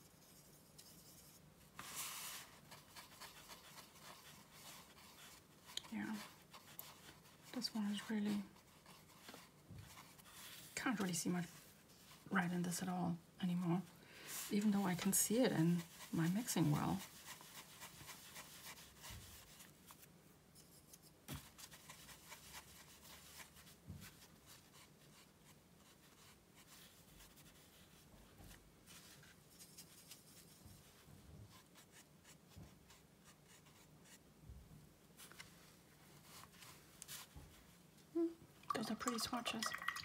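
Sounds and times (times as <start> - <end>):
brush scratching on paper: 0.0 - 12.5, 14.3 - 28.1, 28.8 - 34.2.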